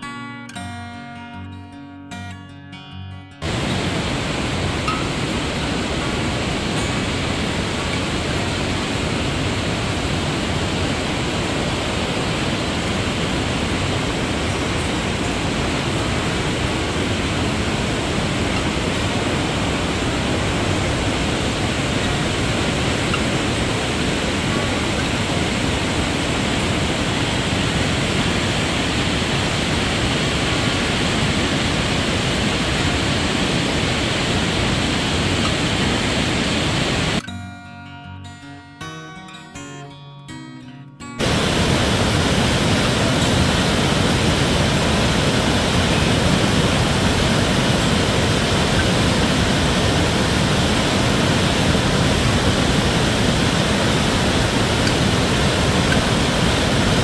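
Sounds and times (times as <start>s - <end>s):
waterfall rushing over rocks: 3.4s - 37.2s, 41.2s - 57.0s.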